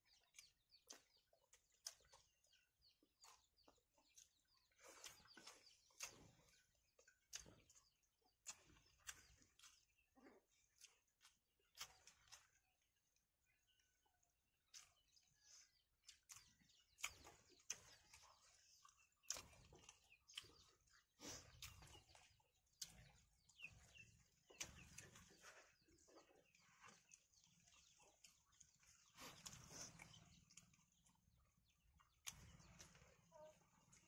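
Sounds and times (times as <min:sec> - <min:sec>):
wet chewing and lip-smacking: 0:00.0 - 0:34.0.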